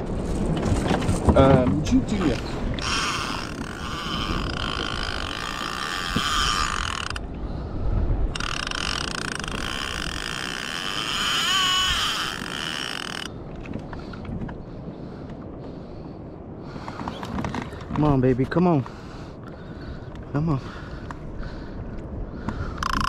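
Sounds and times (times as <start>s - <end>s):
low rumble of wind and water: 0.0s - 23.0s
fishing reel whirring: 2.8s - 7.3s, 8.3s - 13.3s, 22.8s - 23.0s.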